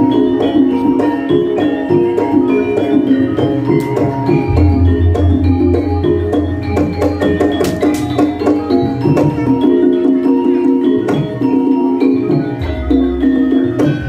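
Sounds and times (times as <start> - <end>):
metallophones ringing melody: 1.7 - 12.0
sharp drum strokes: 4.3 - 8.7
deep low note: 4.5 - 7.4.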